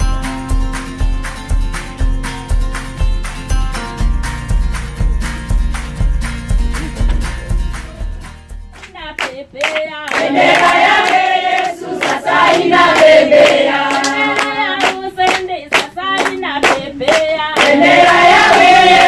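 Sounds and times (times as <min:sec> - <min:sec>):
rhythmic hand clapping: 0:00.0 - 0:19.0
women singing gospel chorus: 0:09.3 - 0:19.0.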